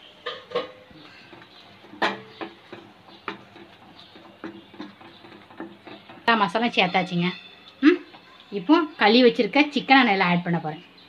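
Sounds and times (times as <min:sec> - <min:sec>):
spatula knocking and scraping pan: 0:00.2 - 0:09.0.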